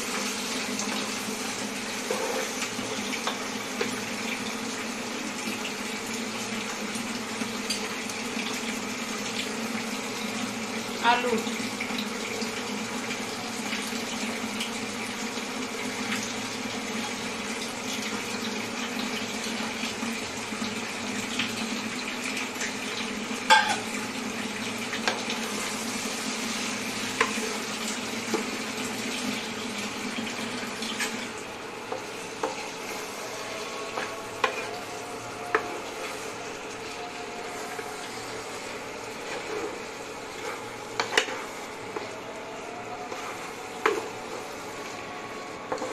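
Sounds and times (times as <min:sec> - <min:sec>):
frying pan sizzling: 0:00.0 - 0:45.9
spatula knocking and scraping pan: 0:02.0 - 0:02.6, 0:31.9 - 0:33.0, 0:39.2 - 0:42.0.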